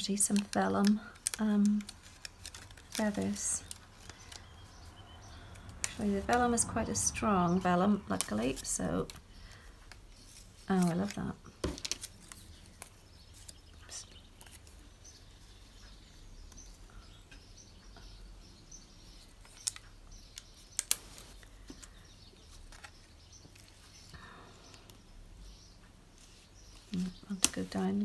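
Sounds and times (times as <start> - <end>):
paper rustling: 0.0 - 4.4, 8.1 - 15.0, 20.8 - 24.1.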